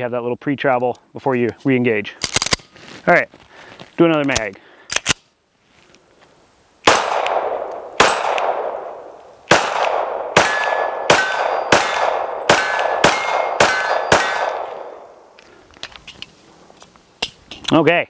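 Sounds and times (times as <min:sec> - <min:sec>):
pistol shots echoing: 0:06.8 - 0:15.3.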